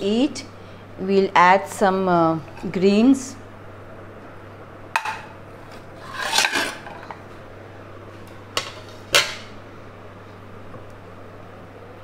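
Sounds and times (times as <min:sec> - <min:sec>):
low steady hum: 0:00.0 - 0:12.0
kitchenware scraping clatter: 0:05.0 - 0:07.2.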